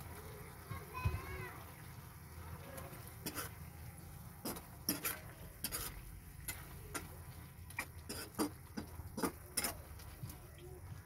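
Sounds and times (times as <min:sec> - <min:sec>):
metal spoon scraping a wok: 0:03.2 - 0:03.6, 0:04.4 - 0:07.1, 0:07.8 - 0:09.8.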